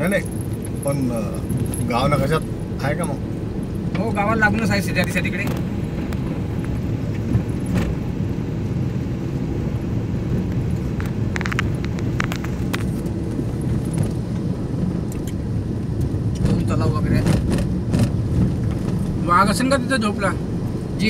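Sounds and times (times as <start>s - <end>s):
car engine and road rumble: 0.0s - 21.0s
knocks and rattles over bumps: 16.4s - 19.2s.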